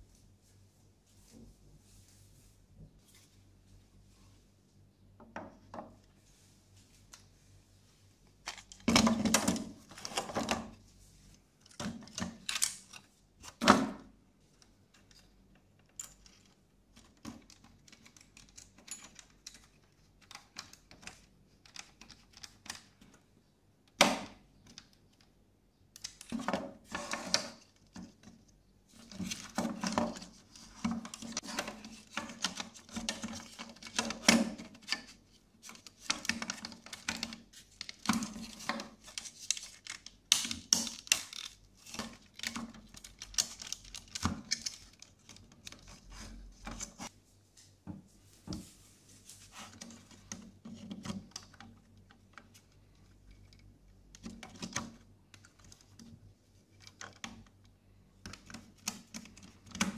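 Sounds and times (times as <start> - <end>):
plastic parts clicking and rattling: 8.4 - 10.8, 11.6 - 23.2, 23.9 - 47.1, 49.7 - 59.9.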